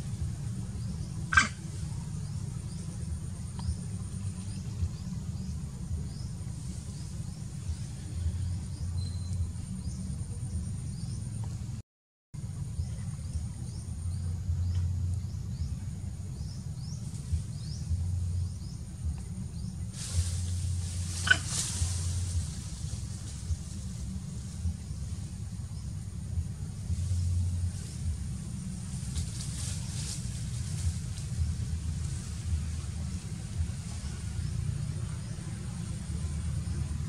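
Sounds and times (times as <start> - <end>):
low rumble: 0.0 - 11.8, 12.4 - 37.0.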